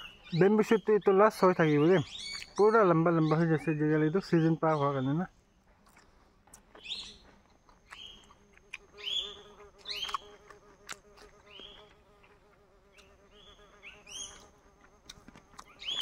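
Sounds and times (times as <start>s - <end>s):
insect buzzing: 0.0s - 3.5s, 6.8s - 16.0s.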